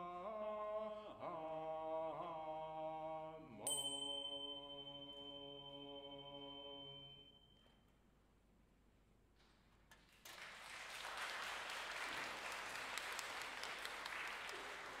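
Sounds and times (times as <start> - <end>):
audience applause: 10.1 - 15.0.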